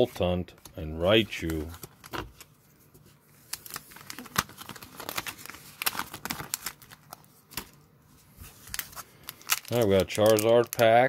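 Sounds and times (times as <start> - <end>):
foil wrapper crinkling: 3.4 - 7.8, 8.4 - 11.0.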